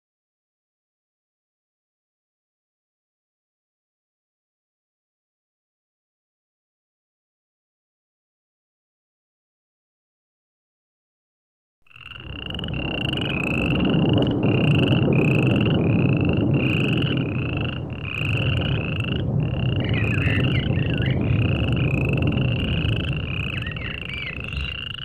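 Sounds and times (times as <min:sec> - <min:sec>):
curling chirps: 0:11.9 - 0:25.0
frogs calling: 0:11.9 - 0:25.0
low rushing noise: 0:12.0 - 0:25.0.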